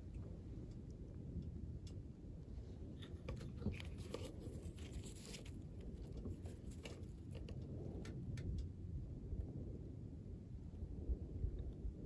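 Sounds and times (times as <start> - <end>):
wind rumble on microphone: 0.0 - 12.0
faint clicks and rustles: 2.8 - 8.8.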